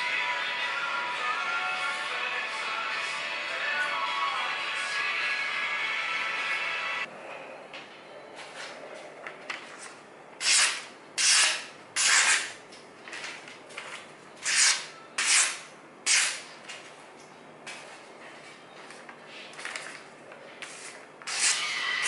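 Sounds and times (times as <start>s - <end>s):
scissors cutting newspaper: 9.8s - 12.6s, 14.4s - 16.5s, 20.8s - 21.8s
paper rustling: 19.4s - 21.0s.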